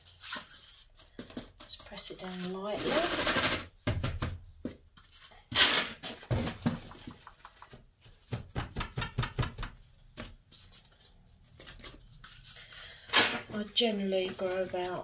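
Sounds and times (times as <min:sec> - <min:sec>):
plastic pots knocking: 0:06.3 - 0:10.4.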